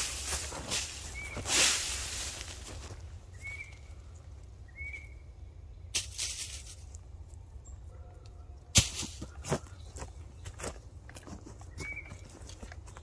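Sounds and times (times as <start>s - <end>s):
dry leaves rustling and crunching: 0.0s - 3.8s, 5.9s - 7.4s.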